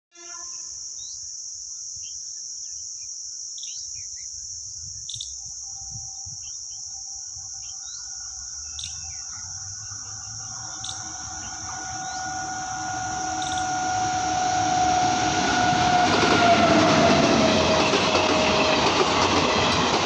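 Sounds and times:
high-pitched insect drone: 0:00.2 - 0:18.8
birds chirping: 0:02.0 - 0:13.8
faint train hum: 0:03.6 - 0:20.0.

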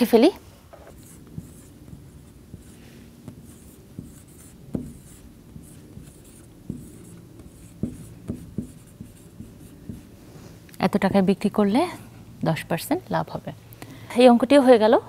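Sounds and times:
marker writing on whiteboard: 0:00.8 - 0:10.2.

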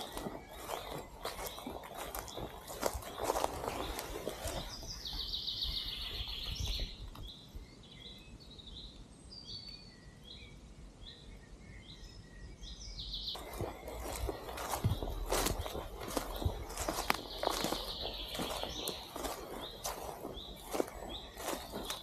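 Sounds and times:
footsteps on forest floor: 0:00.0 - 0:07.0, 0:13.4 - 0:22.0
small bird singing: 0:00.0 - 0:22.0.

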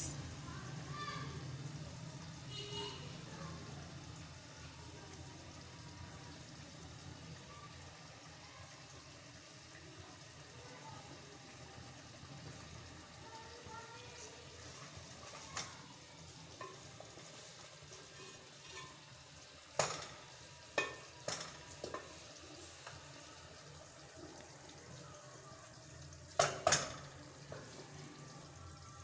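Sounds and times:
faint kitchen background: 0:00.0 - 0:29.0
kitchenware clinking and knocking: 0:18.0 - 0:19.2, 0:19.8 - 0:22.1, 0:26.4 - 0:27.1.

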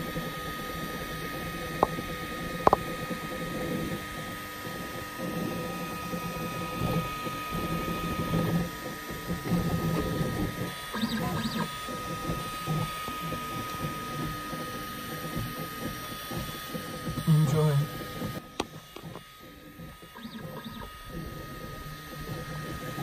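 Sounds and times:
printer motors whirring: 0:00.0 - 0:23.0
steady high whine: 0:00.0 - 0:23.0
high-pitched motor sweeps: 0:10.7 - 0:12.8.

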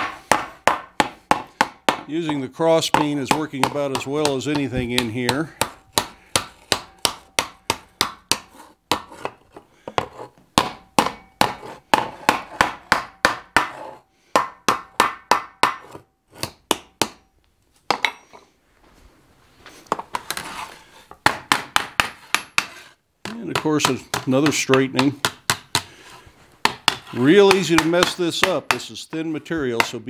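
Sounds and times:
hammer striking sheet steel: 0:00.0 - 0:08.5, 0:10.6 - 0:12.4.

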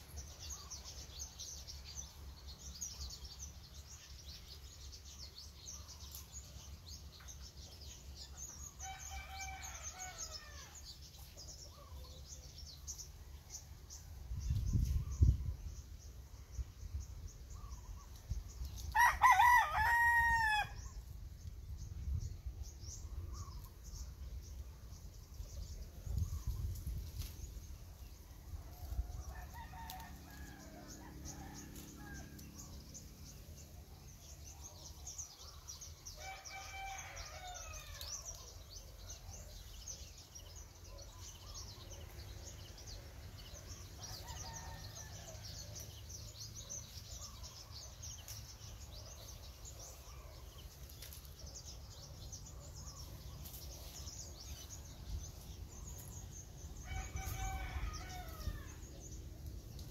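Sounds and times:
rooster crowing: 0:19.0 - 0:20.8, 0:56.8 - 0:58.8.

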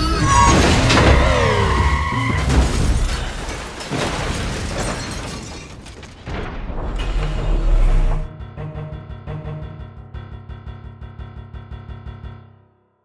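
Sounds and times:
car crashing into post: 0:00.3 - 0:07.2
film score music: 0:06.5 - 0:13.0.

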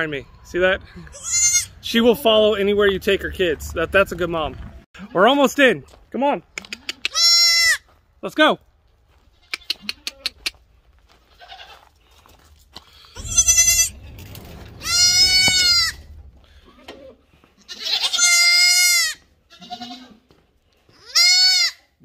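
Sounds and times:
goats bleating: 0:01.0 - 0:02.3, 0:06.6 - 0:07.9, 0:09.4 - 0:10.5, 0:11.3 - 0:11.8, 0:13.2 - 0:14.0, 0:14.8 - 0:20.2, 0:20.9 - 0:21.8.

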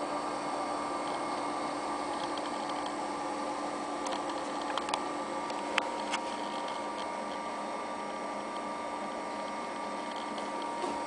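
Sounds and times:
computer fan whirring: 0:00.0 - 0:11.0
faint whine: 0:00.0 - 0:11.0
hard drive ticks: 0:01.0 - 0:03.0, 0:04.0 - 0:07.5, 0:08.5 - 0:08.7.

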